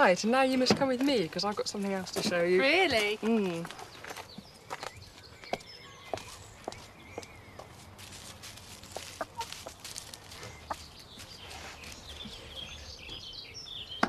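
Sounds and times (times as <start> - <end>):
hens clucking: 7.6 - 12.8.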